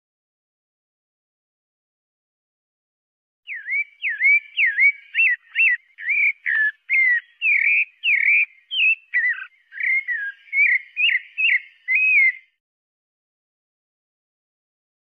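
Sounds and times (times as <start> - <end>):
thrush singing whistled notes: 3.5 - 12.6.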